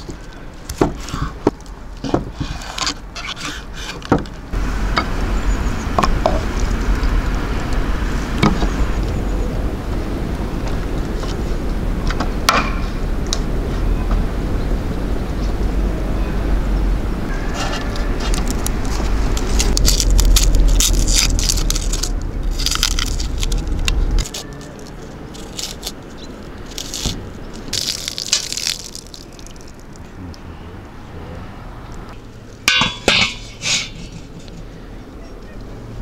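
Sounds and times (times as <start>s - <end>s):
low rumble with crackling clicks: 4.2s - 12.5s, 13.1s - 15.8s, 17.9s - 31.0s.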